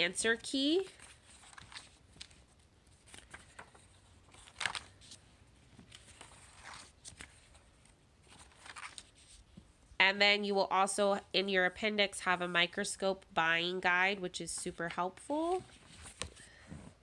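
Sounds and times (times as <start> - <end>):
book pages turning: 0.3 - 9.7, 15.4 - 16.9.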